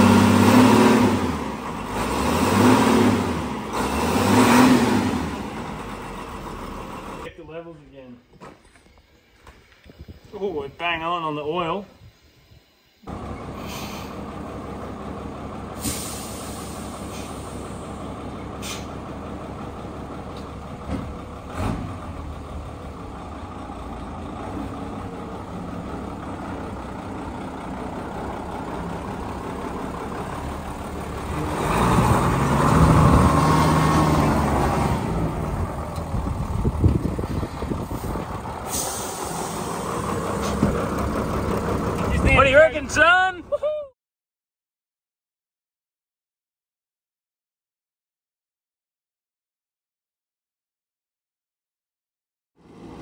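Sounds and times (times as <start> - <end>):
diesel engine idling: 0.0 - 7.7, 13.0 - 43.8, 52.6 - 53.0
short air hisses: 13.5 - 14.2, 15.8 - 17.8, 18.6 - 19.0, 37.9 - 40.6.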